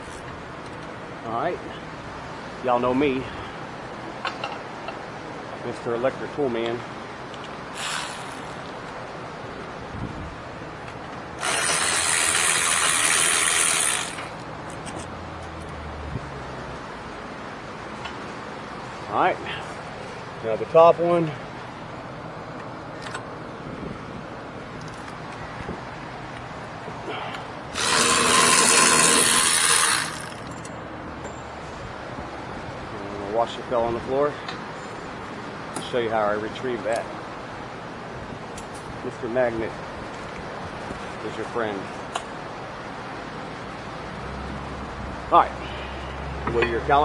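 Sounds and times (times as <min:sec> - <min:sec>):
electric ratchet spinning: 0:07.8 - 0:09.0, 0:11.4 - 0:14.5, 0:27.7 - 0:30.6.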